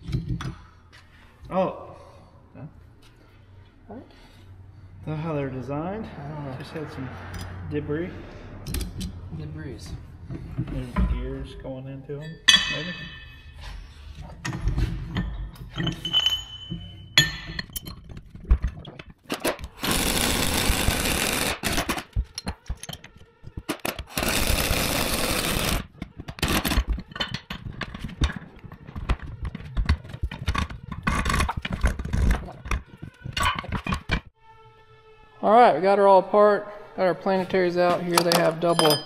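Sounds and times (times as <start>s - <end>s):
clanks of heavy steel parts: 12.2s - 18.1s
pneumatic air tool bursts: 19.8s - 21.9s, 24.1s - 25.8s.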